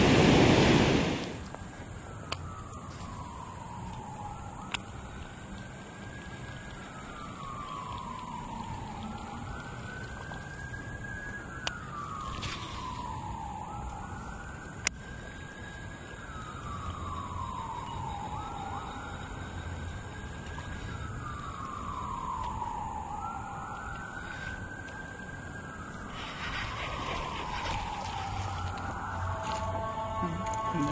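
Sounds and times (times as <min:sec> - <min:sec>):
emergency siren wailing: 0:00.8 - 0:30.9.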